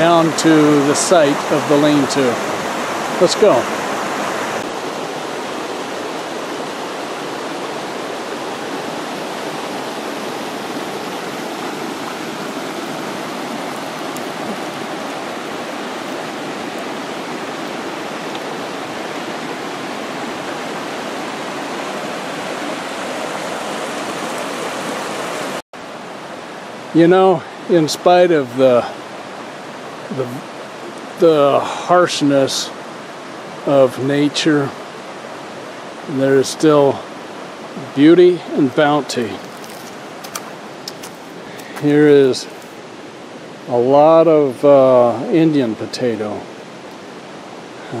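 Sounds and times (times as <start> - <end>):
fast-flowing creek water: 0.0 - 48.0.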